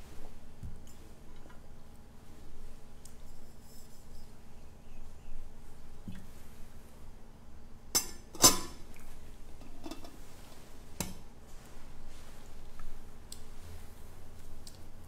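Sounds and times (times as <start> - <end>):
metal vessels clinking: 8.0 - 8.8, 9.6 - 10.2.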